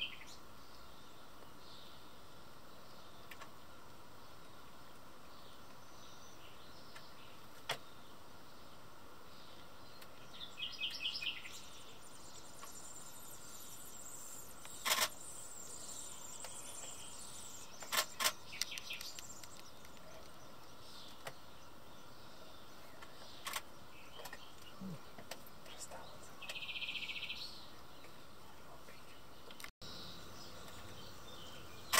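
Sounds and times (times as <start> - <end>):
background hiss: 0.0 - 31.9
faint songbird calls: 0.0 - 31.9.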